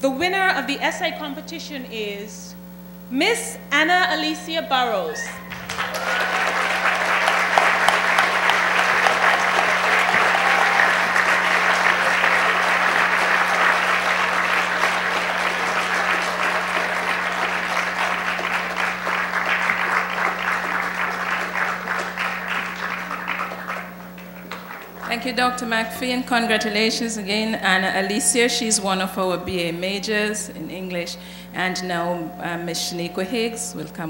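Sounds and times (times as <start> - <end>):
low electrical hum: 0.0 - 34.0
audience applauding: 5.2 - 28.2.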